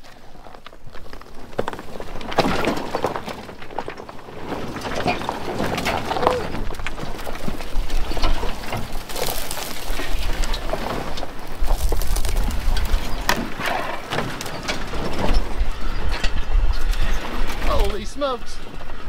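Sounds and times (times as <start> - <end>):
rocks crunching under tyres: 0.0 - 18.0
brush scraping truck body: 1.0 - 17.9
dry brush crackling: 8.3 - 14.0.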